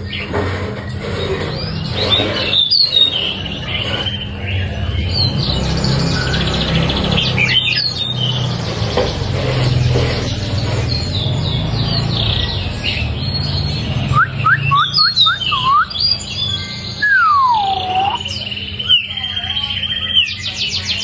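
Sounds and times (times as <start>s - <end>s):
bird singing whistled phrases: 14.1s - 20.9s.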